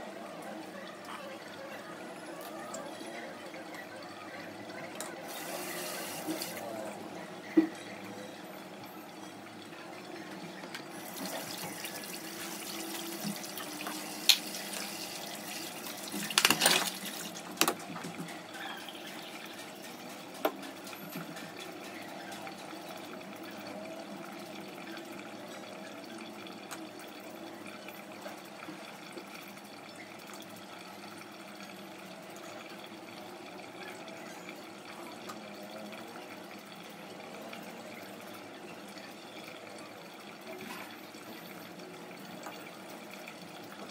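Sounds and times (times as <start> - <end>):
steady water: 0.0 - 43.9.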